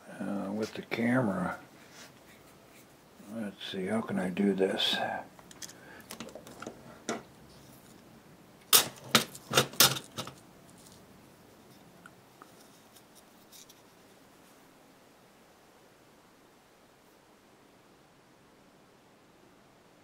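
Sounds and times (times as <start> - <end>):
tools and wooden block handling: 5.4 - 8.0, 8.6 - 11.0.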